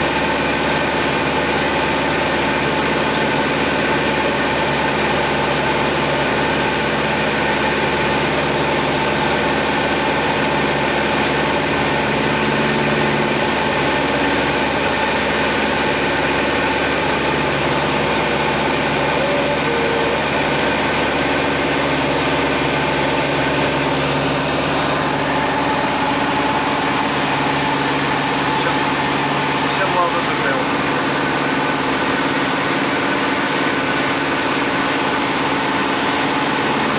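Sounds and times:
aircraft engine drone in cockpit: 0.0s - 36.9s.

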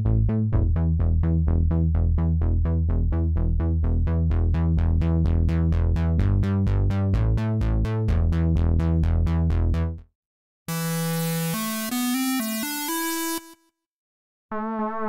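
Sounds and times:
plucked synth bass notes: 0.0s - 10.0s.

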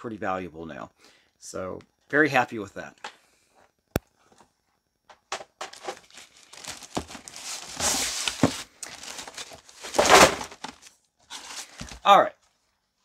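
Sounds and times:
packing material crinkling: 5.7s - 12.0s.

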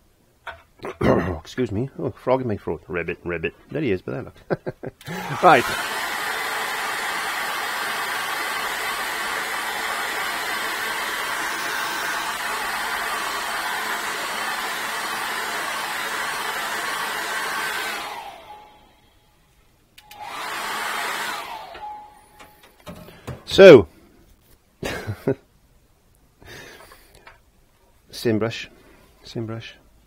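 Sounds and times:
hair dryer blowing: 5.0s - 19.1s, 20.0s - 22.8s.

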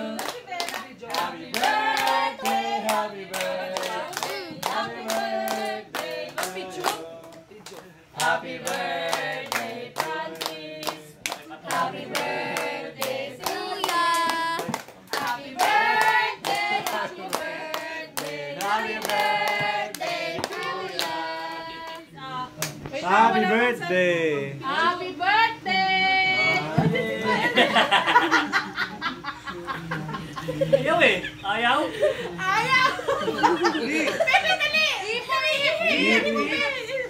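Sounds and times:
small group singing a celebration song: 0.0s - 28.7s, 32.6s - 37.0s
hands clapping: 13.0s - 21.1s.

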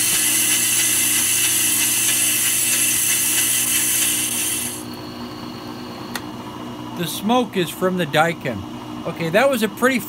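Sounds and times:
cutting bits scraping rotor: 0.0s - 4.8s
lathe motor hum: 0.0s - 5.0s.

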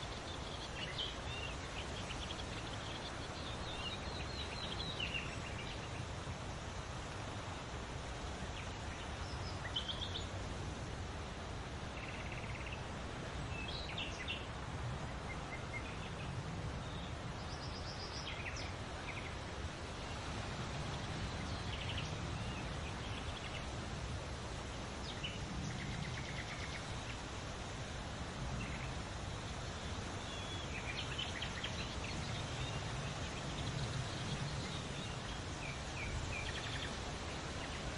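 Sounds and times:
low rumble and hiss: 0.0s - 37.9s.

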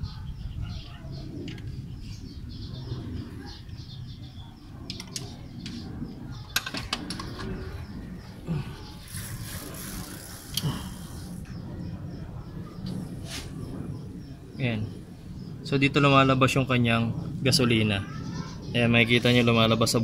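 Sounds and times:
small birds chirping: 0.0s - 20.0s
steady low rumble: 0.0s - 20.0s.

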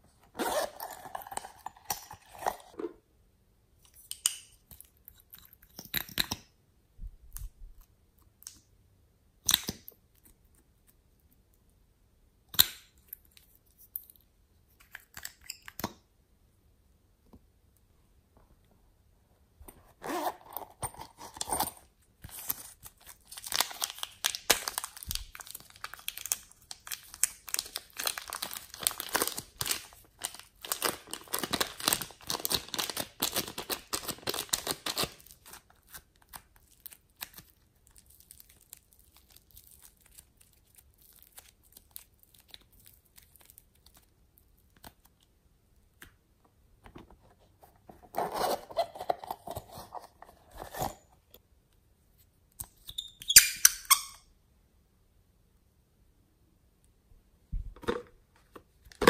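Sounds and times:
slime crackling and tearing: 22.6s - 45.1s
faint handling sounds: 35.1s - 52.8s.

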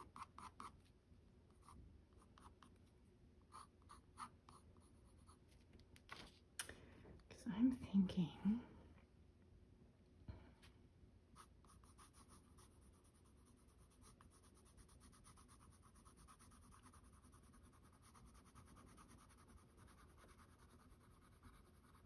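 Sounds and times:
pencil scratching on paper: 0.0s - 0.8s, 11.4s - 22.0s.

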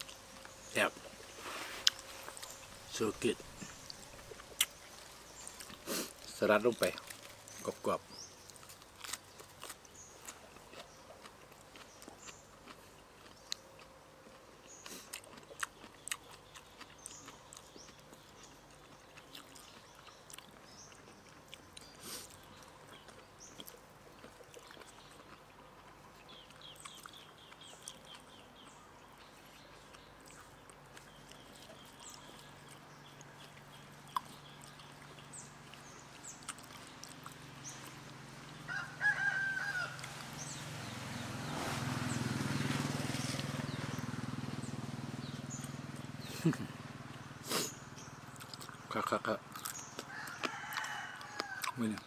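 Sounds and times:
rooster crowing: 38.6s - 40.6s, 50.0s - 51.9s.

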